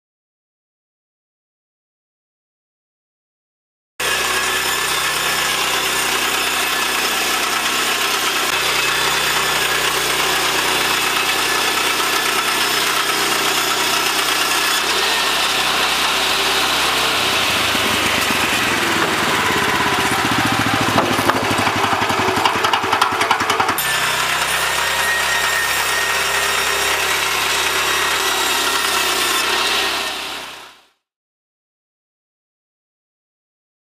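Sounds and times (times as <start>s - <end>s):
petrol engine running: 4.0s - 30.6s
saw cutting through board: 4.0s - 31.0s.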